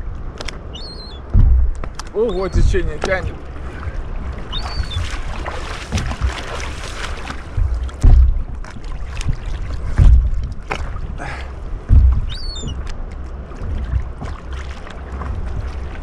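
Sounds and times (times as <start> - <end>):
water slapping against microphone: 0.0 - 16.0
water sloshing and splashing: 0.0 - 16.0.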